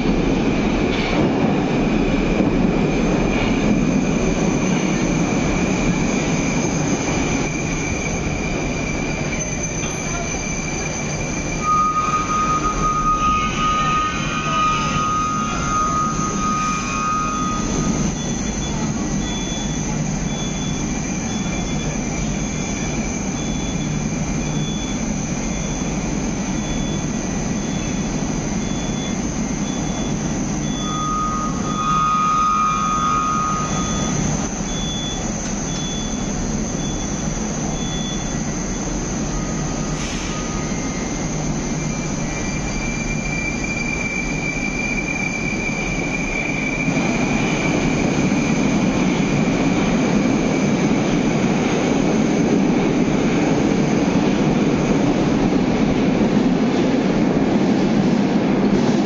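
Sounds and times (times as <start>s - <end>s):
metro train rumbling on rails: 0.0s - 59.0s
train wheels squealing: 2.9s - 57.1s.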